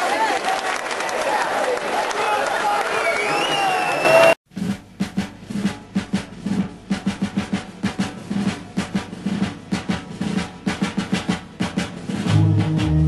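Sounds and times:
drum kit playing quick beat: 0:04.5 - 0:13.0.

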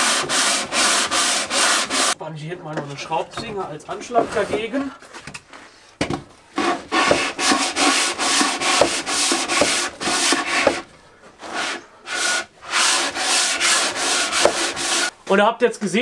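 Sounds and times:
sanding block on wood: 0:00.0 - 0:02.2, 0:06.6 - 0:15.1.

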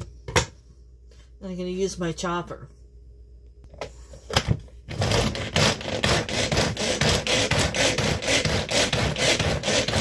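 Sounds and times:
food chopper blades rasping: 0:04.9 - 0:10.0.

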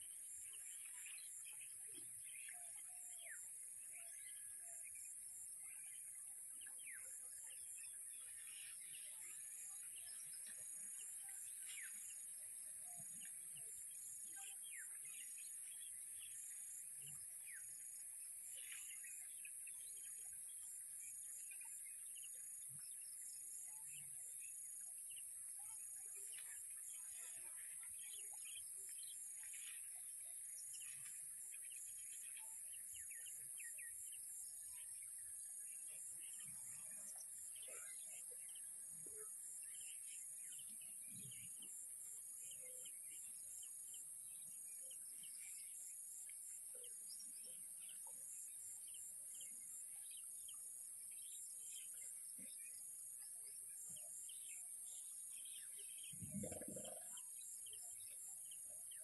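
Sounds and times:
small birds chirping: 0:53.9 - 0:59.0
rapid pulsing insect call: 0:55.6 - 0:59.0.

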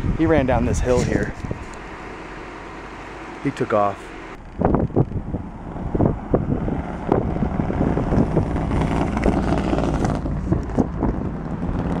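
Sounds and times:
wind buffeting microphone: 0:00.0 - 0:02.0, 0:04.4 - 0:12.0.

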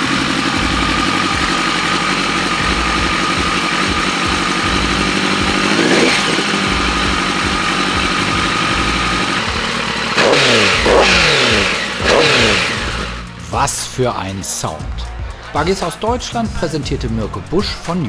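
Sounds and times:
engine idling and revving: 0:00.0 - 0:13.8.

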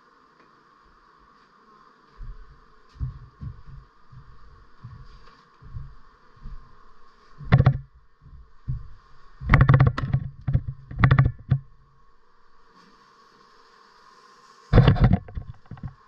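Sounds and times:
bee colony humming: 0:00.0 - 0:16.0
rapid knocking and scraping: 0:07.4 - 0:07.9, 0:08.7 - 0:11.7, 0:14.8 - 0:16.0.

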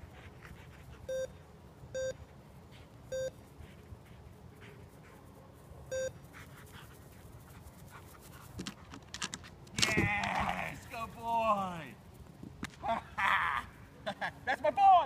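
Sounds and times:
short electronic beeps: 0:02.0 - 0:02.2, 0:03.1 - 0:03.4, 0:05.9 - 0:06.2.

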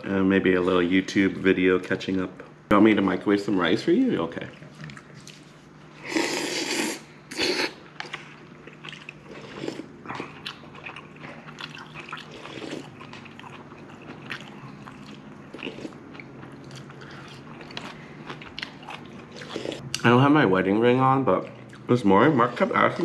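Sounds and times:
slurping noodles: 0:06.0 - 0:07.8
close-up chewing: 0:08.0 - 0:20.0.

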